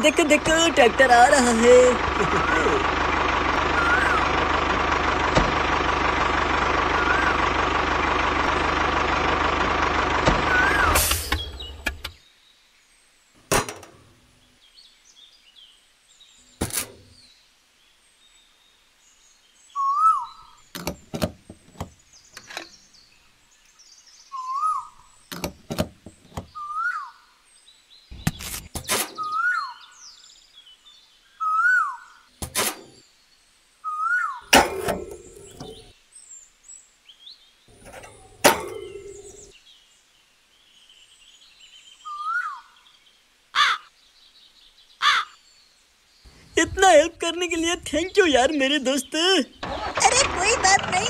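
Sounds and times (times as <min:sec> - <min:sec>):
small tractor engine: 0:00.0 - 0:12.2, 0:34.5 - 0:35.9, 0:37.7 - 0:39.5, 0:46.5 - 0:51.0
bird chirping: 0:10.5 - 0:13.2, 0:14.4 - 0:51.0.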